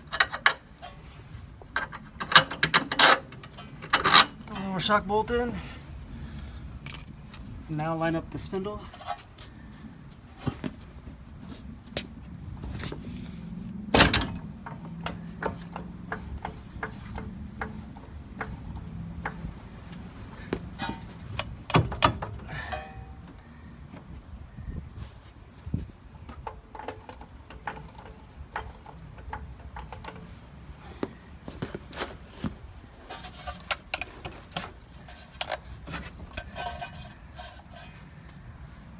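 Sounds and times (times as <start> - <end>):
metal clanks and taps: 14.0 - 19.6, 20.5 - 23.4, 26.2 - 30.3.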